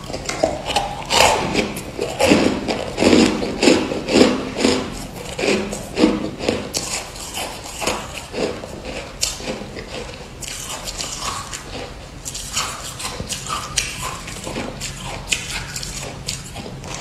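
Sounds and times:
crunching ice in mouth: 0:00.0 - 0:17.0.

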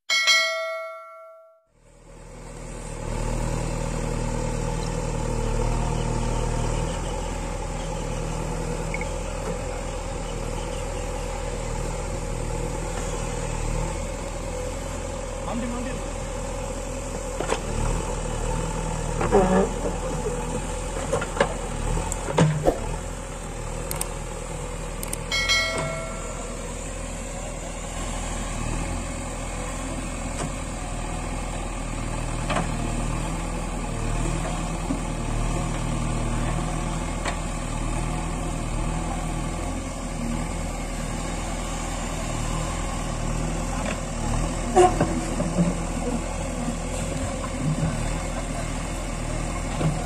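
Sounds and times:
diesel engine running: 0:01.8 - 0:50.0.

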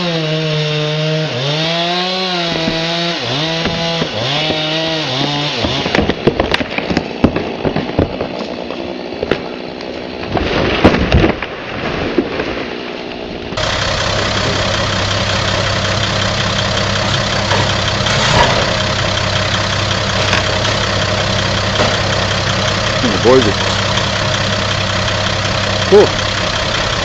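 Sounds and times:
tree crashing to ground: 0:01.5 - 0:27.0
diesel truck engine idling: 0:13.6 - 0:27.0.

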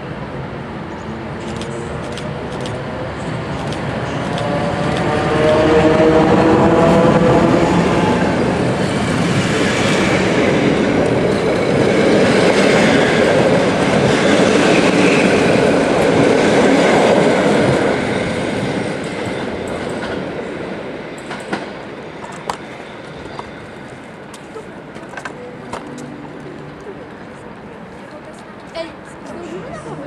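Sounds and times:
passenger train passing: 0:00.0 - 0:30.0.

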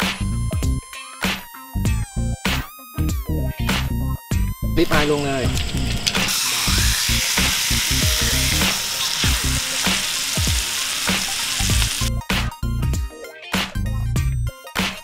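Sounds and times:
music with a steady beat: 0:00.0 - 0:04.7, 0:08.0 - 0:15.0
steaks sizzling in a frying pan: 0:05.1 - 0:12.1.

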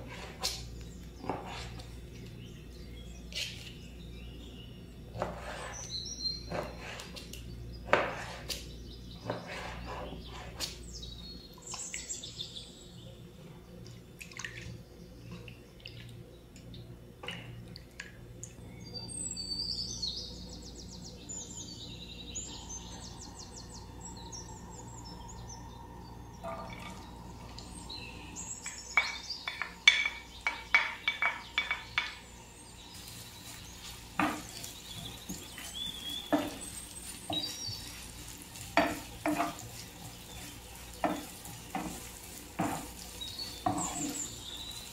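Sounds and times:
birdsong chirping: 0:00.0 - 0:17.6, 0:18.3 - 0:44.9
onions sizzling in frying pan: 0:28.6 - 0:44.9.

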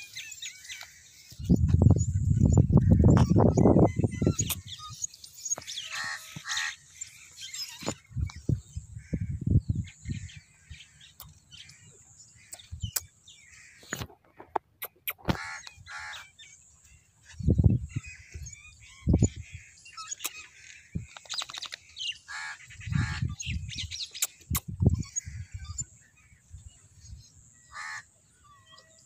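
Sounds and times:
birds calling: 0:00.0 - 0:29.0
crow-like caws: 0:22.3 - 0:23.2, 0:27.7 - 0:28.1.

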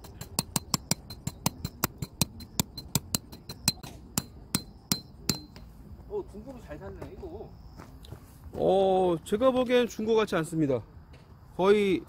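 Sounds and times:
hammer striking tent peg: 0:00.0 - 0:05.7.

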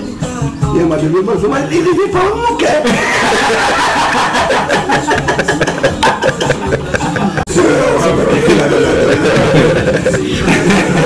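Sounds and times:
men laughing: 0:02.8 - 0:11.0.

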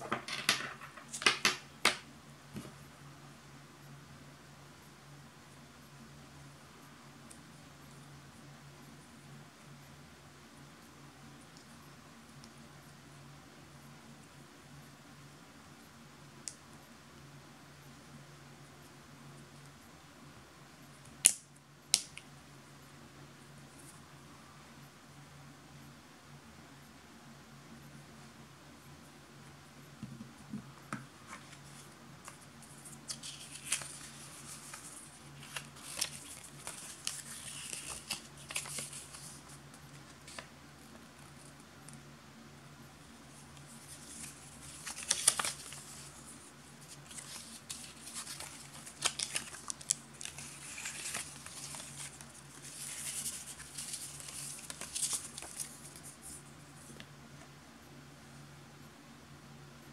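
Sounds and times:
faint low hum: 0:00.0 - 0:59.9
paper rustling and crinkling: 0:31.1 - 0:40.5, 0:43.3 - 0:57.0.

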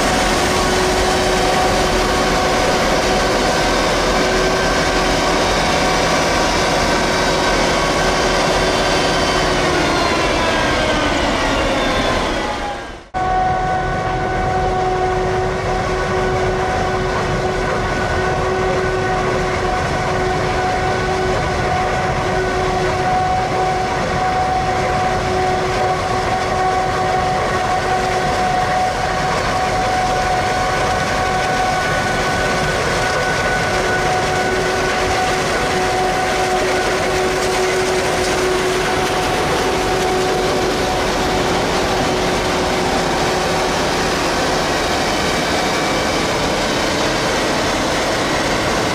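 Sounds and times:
constant machine whine: 0:00.0 - 0:48.9.

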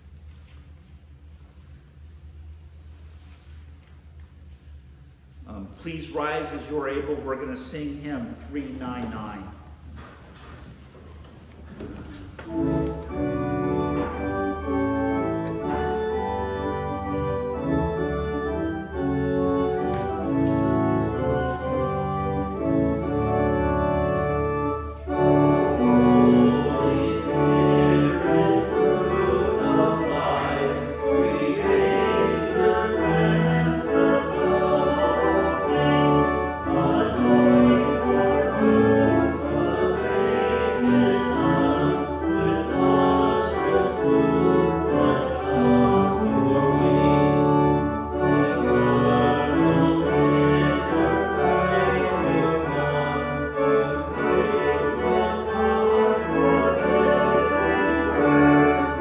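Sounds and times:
organ playing a hymn: 0:05.4 - 0:09.6, 0:11.7 - 0:59.0
congregation singing: 0:11.9 - 0:59.0.

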